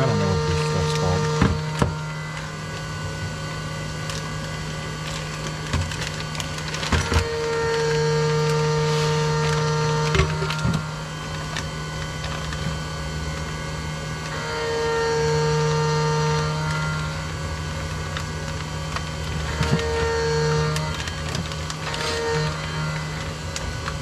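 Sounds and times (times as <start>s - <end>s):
heat sealer buzzing: 0.0s - 24.0s
milling machine humming: 0.0s - 24.0s
plastic bag crinkling: 3.8s - 13.4s, 17.8s - 24.0s.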